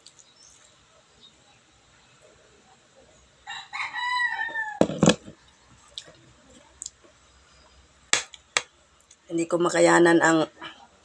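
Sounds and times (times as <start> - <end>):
rooster crowing: 3.4 - 5.0
bottle knocking on table: 4.8 - 5.3.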